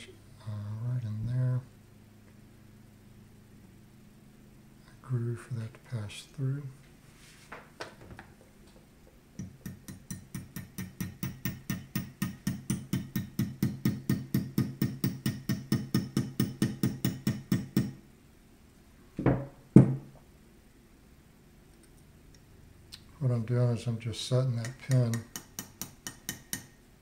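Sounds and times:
louder knocks: 19.2s - 20.1s.

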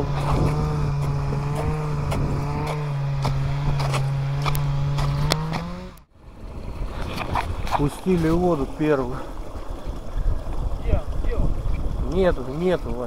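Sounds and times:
pole striking ice: 0.2s - 5.6s.

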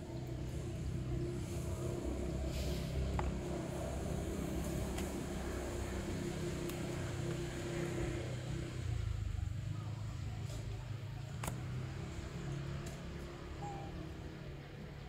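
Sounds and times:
low mechanical hum and rumble: 0.0s - 15.0s
faint held tone: 13.6s - 14.1s.

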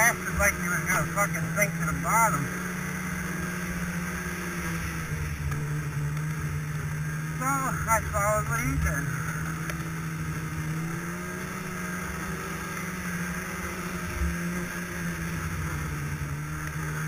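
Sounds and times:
snowmobile engine running: 0.0s - 17.0s.

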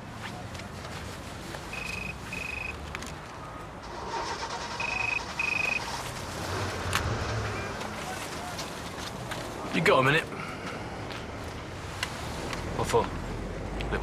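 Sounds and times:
phone ringing high double beep: 1.7s - 2.8s, 4.8s - 5.8s.

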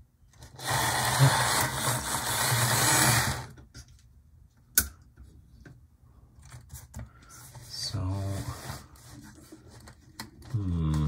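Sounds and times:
model locomotive whirring on track: 0.6s - 3.5s.

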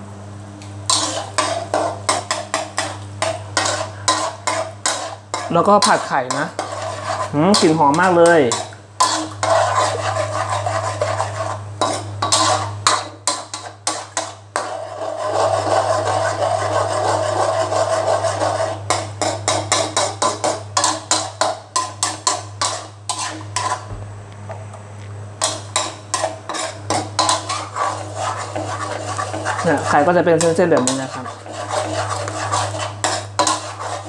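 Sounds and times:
steady low hum: 0.0s - 34.0s
eggs sizzling: 0.8s - 23.9s, 25.4s - 34.0s
metal ladle scraping a wok: 0.9s - 23.9s, 25.4s - 34.0s.

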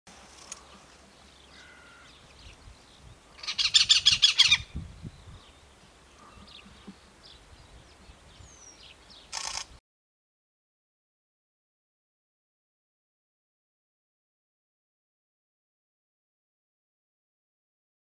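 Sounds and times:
faint bird calls: 0.3s - 9.7s
cuckoo harsh rapid calls: 3.4s - 4.8s.

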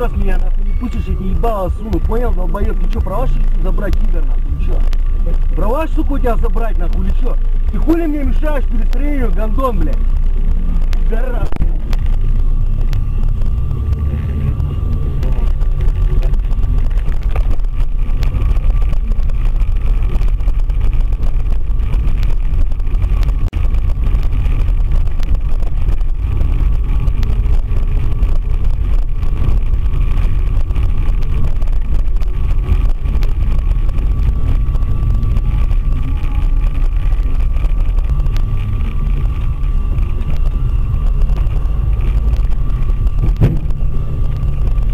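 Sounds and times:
car engine and road noise: 0.0s - 44.9s
faint steady whine: 0.0s - 44.9s.

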